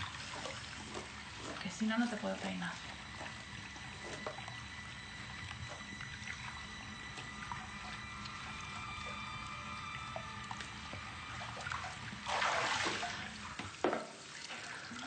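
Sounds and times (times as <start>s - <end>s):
water splashing in bathtub: 0.0s - 15.0s.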